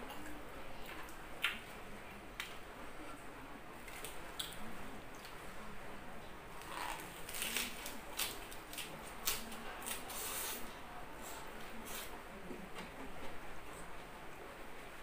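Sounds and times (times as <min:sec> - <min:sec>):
crunchy chewing: 0:06.5 - 0:12.1
lettuce leaf rustling: 0:06.6 - 0:10.6.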